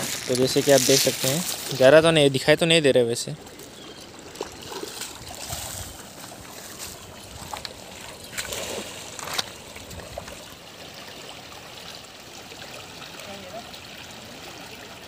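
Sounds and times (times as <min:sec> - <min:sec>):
water splashing: 0:00.0 - 0:02.3, 0:03.3 - 0:15.0
river water running over stones: 0:00.0 - 0:15.0
cast net splashing into water: 0:04.3 - 0:10.4.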